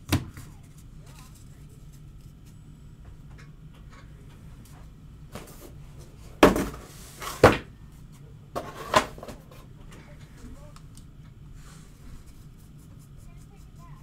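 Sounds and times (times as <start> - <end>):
cards and packaging knocking on table: 6.4 - 6.8.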